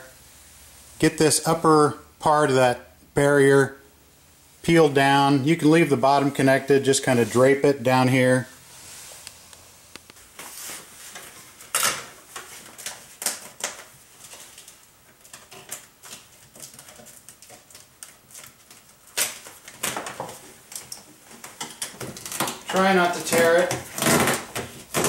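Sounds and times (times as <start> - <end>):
plastic sheet crackling: 10.2 - 25.0.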